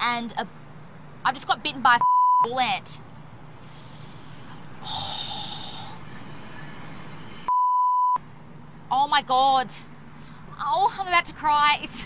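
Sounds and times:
censor bleep: 0:02.0 - 0:02.5, 0:07.5 - 0:08.2.

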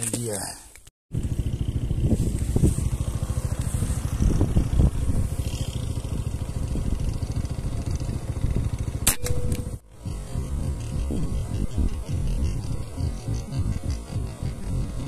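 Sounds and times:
low bumps: 0:01.1 - 0:15.0
low pulsing rumble: 0:01.1 - 0:15.0.

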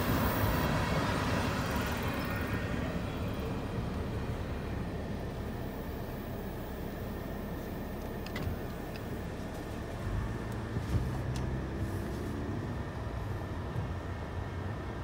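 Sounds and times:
engine drone: 0:00.0 - 0:15.0
low vehicle rumble: 0:00.0 - 0:15.0.

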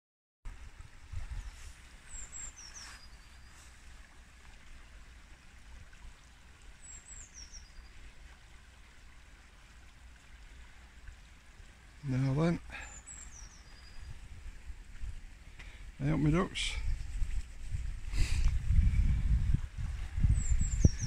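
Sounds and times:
shallow stream running: 0:00.5 - 0:21.0
small bird singing: 0:01.4 - 0:03.7, 0:06.8 - 0:08.0, 0:12.0 - 0:14.2, 0:20.2 - 0:21.0
steady low rumble: 0:13.9 - 0:21.0.

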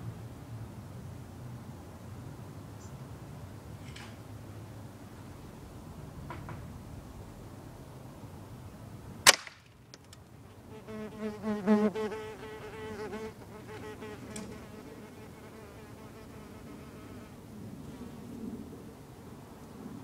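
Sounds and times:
gunshot crack: 0:09.2 - 0:09.6
fly buzzing: 0:10.7 - 0:17.4.

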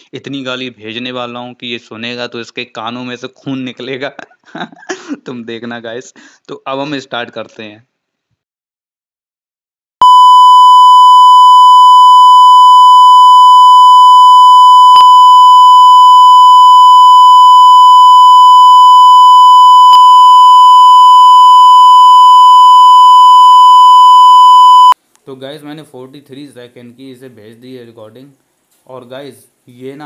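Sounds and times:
censor bleep tone: 0:10.0 - 0:25.0.

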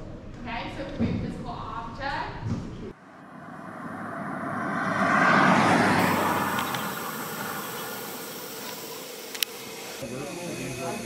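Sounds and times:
passing car road noise: 0:02.9 - 0:10.0.

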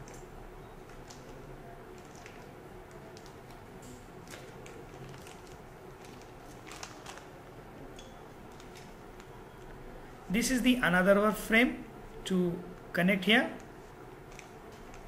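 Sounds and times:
low steady hum: 0:00.0 - 0:15.0
plastic bag crinkling: 0:00.9 - 0:09.4, 0:13.6 - 0:15.0.

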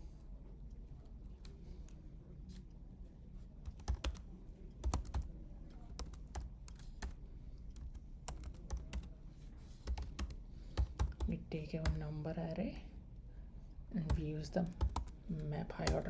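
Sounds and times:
low steady hum: 0:00.0 - 0:16.0
typing on computer keyboard: 0:03.6 - 0:09.1, 0:09.8 - 0:12.0, 0:14.0 - 0:16.0.

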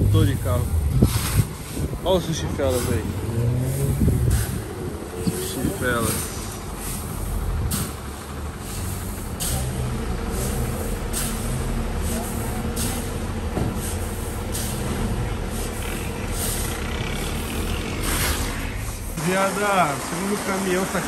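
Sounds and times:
truck engine running: 0:00.0 - 0:21.0.

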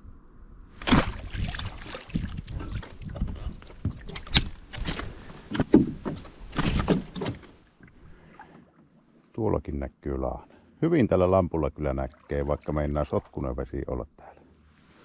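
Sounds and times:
oars splashing: 0:00.8 - 0:08.8, 0:11.8 - 0:13.6.

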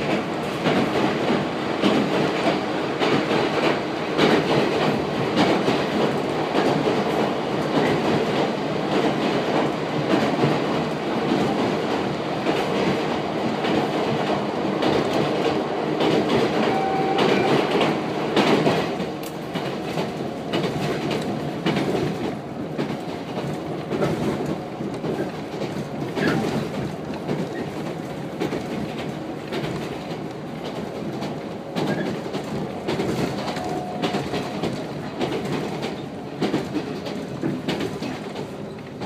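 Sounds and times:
train wheels rumbling: 0:00.0 - 0:39.0
wheel clacks over rail joints: 0:14.8 - 0:39.0.

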